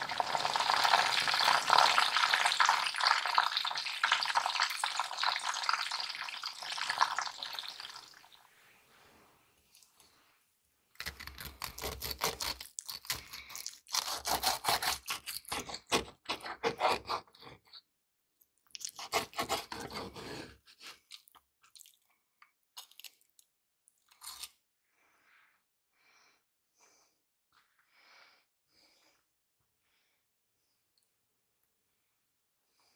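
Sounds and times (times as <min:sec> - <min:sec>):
crunching fried breaded crust: 0:00.0 - 0:08.3, 0:11.0 - 0:16.2.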